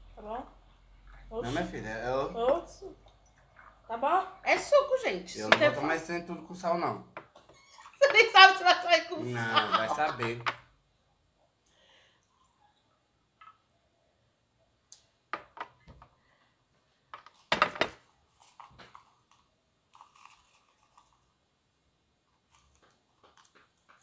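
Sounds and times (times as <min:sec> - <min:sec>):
glassware knocking and clinking: 0:05.4 - 0:05.8, 0:09.6 - 0:10.6.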